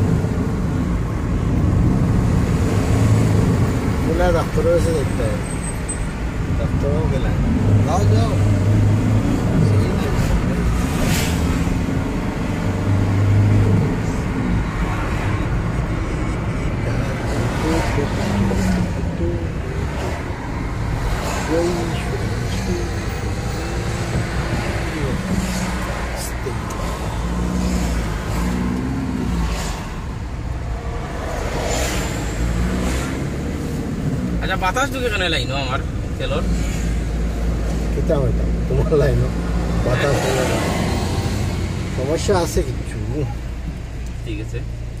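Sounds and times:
vehicle engine and road rumble: 0.0s - 45.0s.

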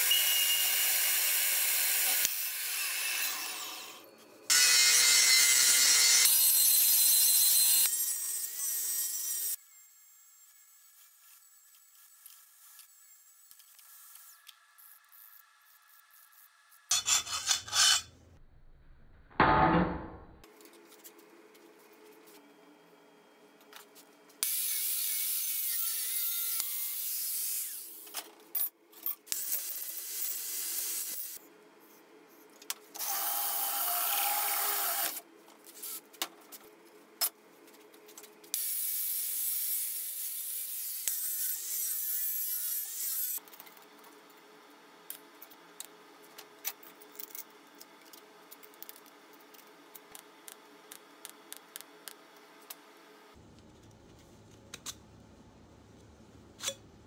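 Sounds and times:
power grinder grinding metal: 16.9s - 18.2s.

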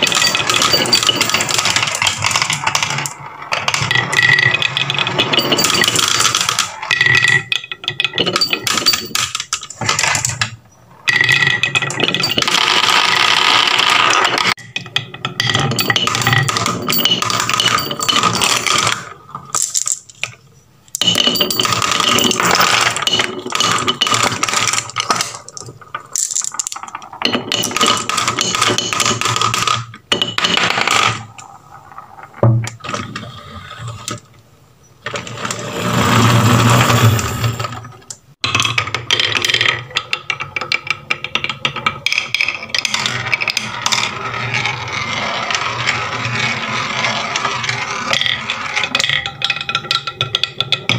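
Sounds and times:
marbles rolling down wooden chute: 0.0s - 20.3s, 21.0s - 33.0s, 35.0s - 50.9s
marbles clattering in plastic truck: 0.0s - 33.2s, 35.0s - 50.9s
marble rolling on wooden track: 0.0s - 34.4s, 35.0s - 50.9s.

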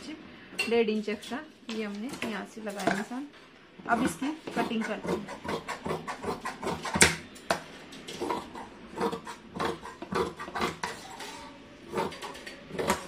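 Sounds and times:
scissors snipping fabric: 11.9s - 13.0s.

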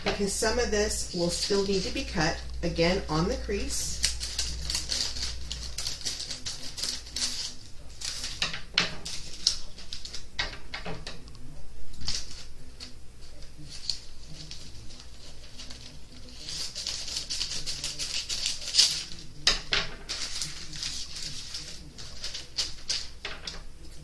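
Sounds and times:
paper crinkling: 0.3s - 10.4s, 11.1s - 19.4s, 20.0s - 24.0s
scissors snipping paper: 3.5s - 10.3s, 13.6s - 19.5s, 20.1s - 23.2s.

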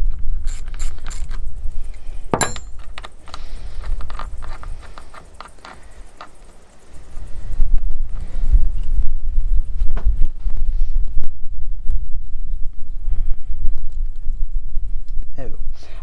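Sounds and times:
small metal parts clicking: 0.0s - 7.5s
wind rumble on microphone: 0.0s - 16.0s
metallic clank with ring: 2.3s - 2.8s.

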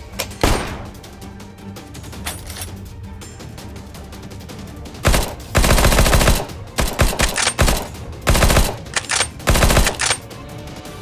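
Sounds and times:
automatic gunfire bursts: 5.1s - 10.2s.

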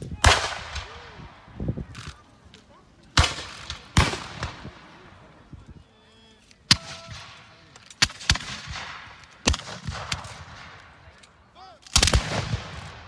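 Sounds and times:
musket shots echoing: 0.2s - 1.5s, 3.2s - 5.0s, 6.7s - 11.2s, 11.8s - 13.0s.

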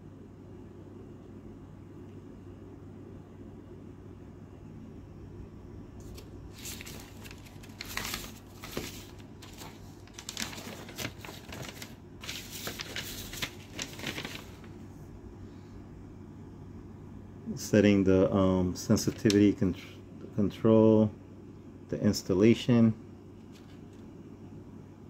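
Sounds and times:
low steady hum: 0.0s - 25.0s
paper rustling and crinkling: 6.0s - 14.8s, 23.4s - 24.0s.

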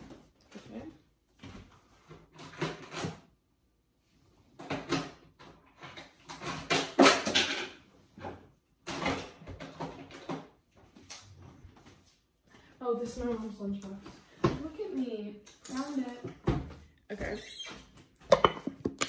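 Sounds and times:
drawers and cupboard doors clattering: 4.6s - 10.5s.

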